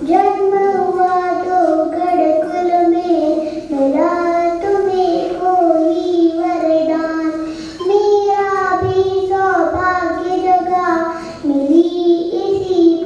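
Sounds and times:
girl singing into a microphone: 0.0s - 13.0s
short breath: 7.4s - 7.8s, 11.1s - 11.4s.

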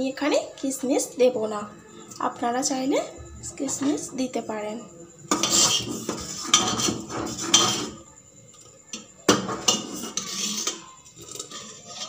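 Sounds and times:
ladle scraping metal pot: 5.3s - 8.0s, 9.3s - 12.0s.

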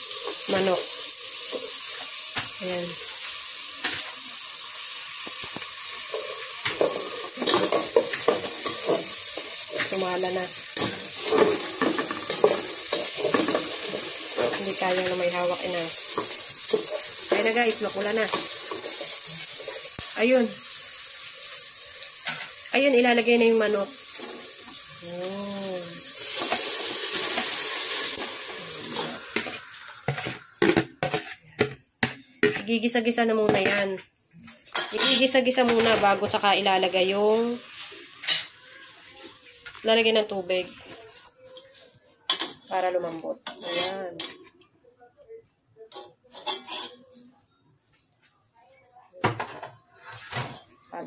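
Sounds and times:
onions sizzling in hot oil: 0.0s - 41.2s
spatula scraping and tapping pot: 5.2s - 20.0s, 29.0s - 34.0s, 43.4s - 44.7s, 45.8s - 47.3s.

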